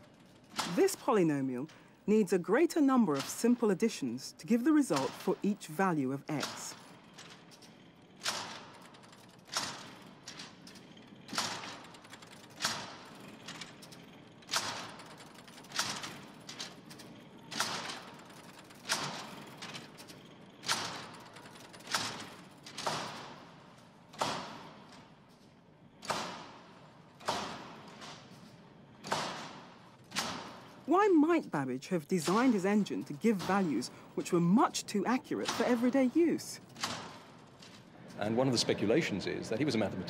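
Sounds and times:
smaller mechanical knocks: 2.8s - 30.9s.

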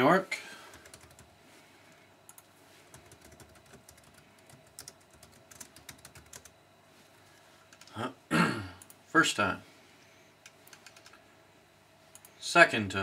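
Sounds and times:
keyboard typing: 0.7s - 1.3s, 2.3s - 6.6s, 7.7s - 8.0s, 10.4s - 11.2s.

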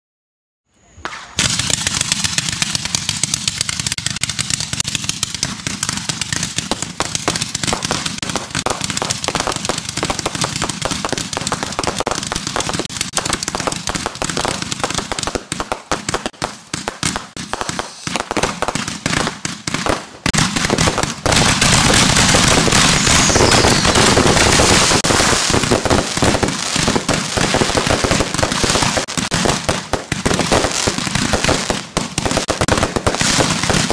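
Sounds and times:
crackling firework stars: 0.7s - 33.9s
fireworks launching and bursting: 0.8s - 33.9s.

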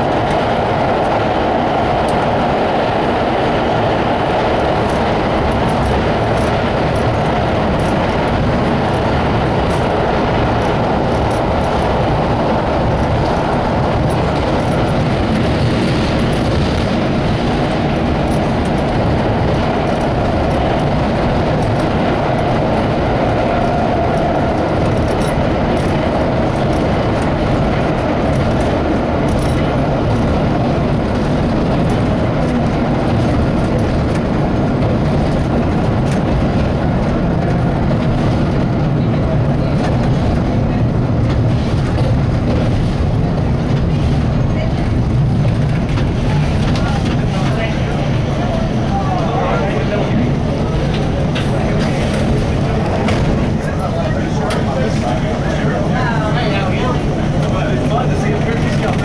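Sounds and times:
subway train running on rails: 0.0s - 59.0s.

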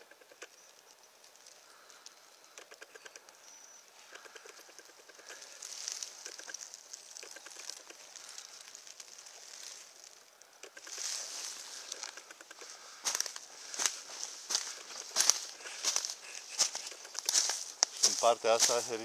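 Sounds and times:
dry leaf litter rustling: 3.8s - 19.0s
footsteps crunching on dry leaves: 4.8s - 10.2s, 10.8s - 19.0s.

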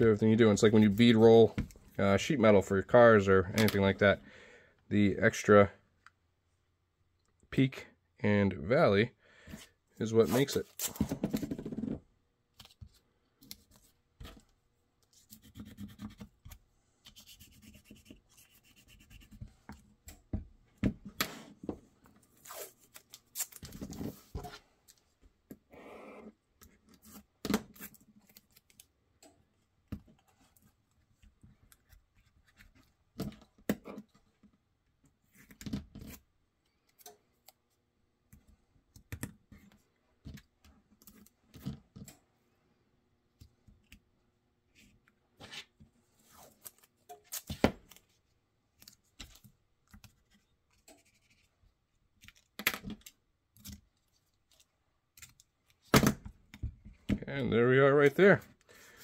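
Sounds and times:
tape ripping from roll: 22.4s - 23.8s.

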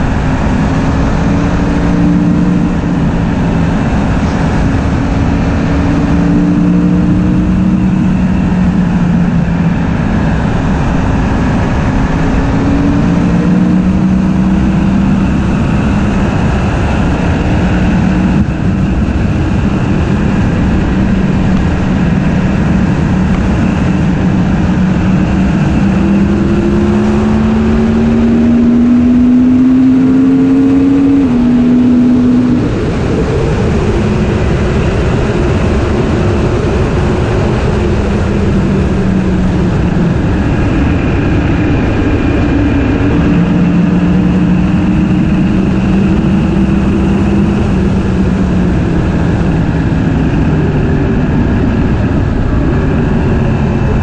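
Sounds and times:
motorcycle engine running: 0.0s - 54.0s.

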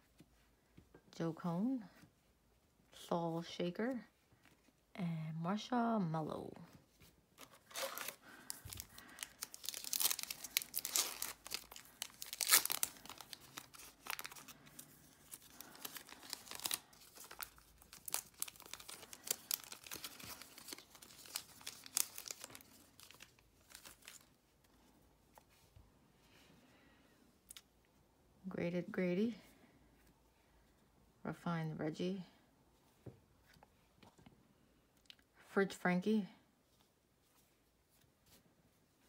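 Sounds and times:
cards being handled: 7.0s - 24.2s
wrapper tearing and crinkling: 7.4s - 24.4s.

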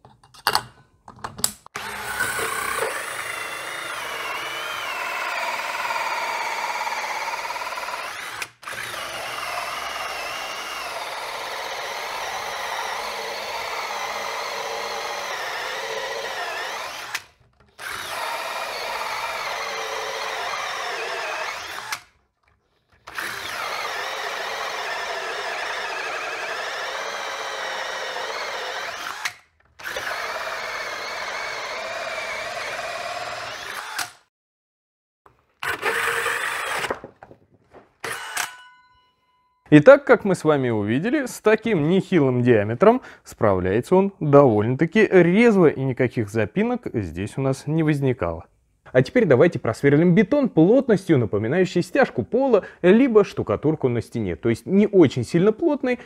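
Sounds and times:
drill with hole saw cutting wood: 1.7s - 34.3s, 35.6s - 37.0s, 38.0s - 38.6s.

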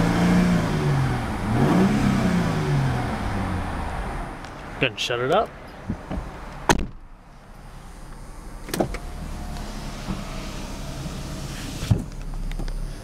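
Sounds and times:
car engine idling: 0.0s - 13.0s
power window motor running: 8.2s - 12.4s.

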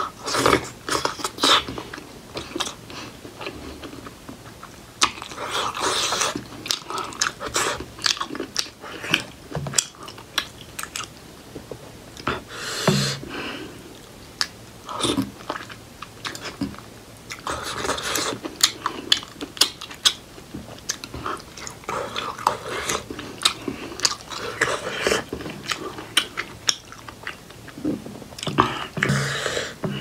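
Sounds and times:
chewing and mouth smacks: 0.3s - 12.3s, 14.4s - 29.2s.

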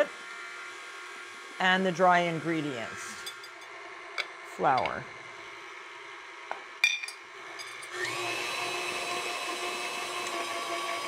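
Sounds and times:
stand mixer motor whining: 0.0s - 1.6s, 7.4s - 11.0s.

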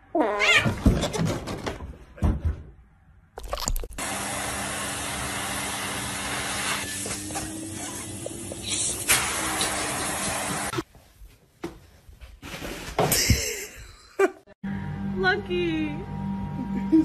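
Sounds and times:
vacuum cleaner running: 4.0s - 10.8s
knocks and scuffles: 10.8s - 13.2s.

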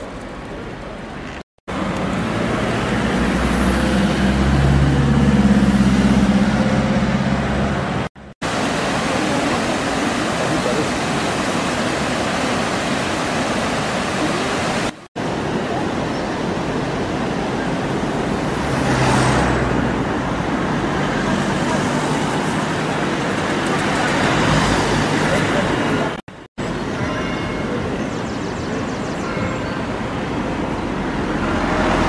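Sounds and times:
vehicle engine humming: 0.0s - 9.7s, 17.0s - 28.0s
street traffic: 0.0s - 32.0s
car passing close: 1.7s - 9.0s, 18.2s - 26.2s, 30.3s - 32.0s
river water rushing over weir: 1.7s - 28.0s.

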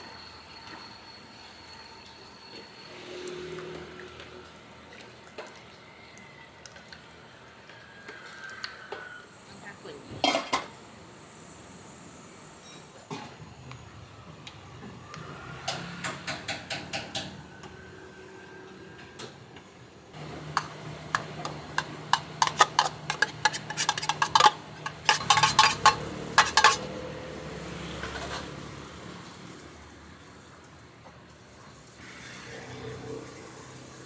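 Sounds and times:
metal spoon clinking on pan: 21.4s - 26.9s.

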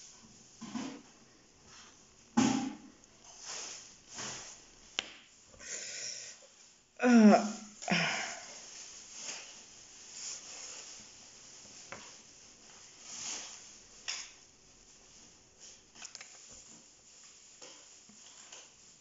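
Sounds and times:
quiet nose breathing: 5.5s - 6.6s
woman's wordless vocal sound: 7.0s - 8.4s.

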